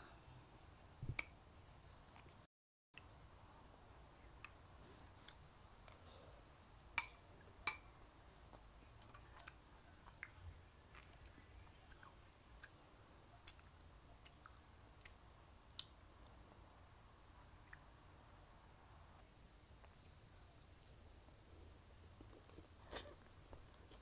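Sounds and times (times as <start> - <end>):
spoon clinking against bowl: 7.0 - 7.9
chewing: 8.5 - 12.8, 19.7 - 24.0.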